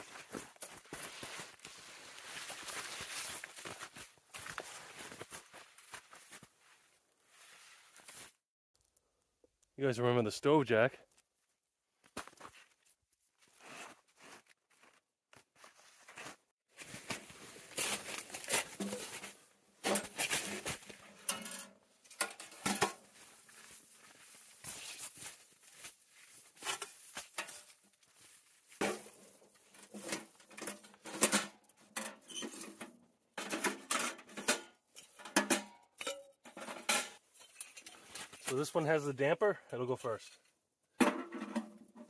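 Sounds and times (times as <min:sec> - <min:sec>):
rustling of boughs and canvas: 0:00.0 - 0:08.4, 0:12.0 - 0:21.2, 0:23.0 - 0:30.4
metal stove clinking and clattering: 0:21.2 - 0:23.0, 0:33.4 - 0:38.1.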